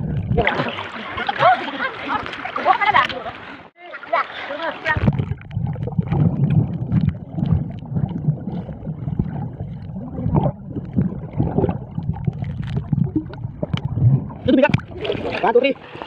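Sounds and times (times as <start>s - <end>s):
underwater rumble and gurgling: 0.0s - 1.4s, 4.9s - 16.0s.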